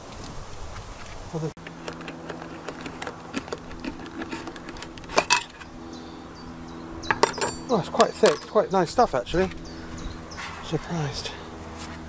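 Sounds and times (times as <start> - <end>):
steady low hum: 1.3 - 12.0
metallic clinks and taps: 7.1 - 8.6.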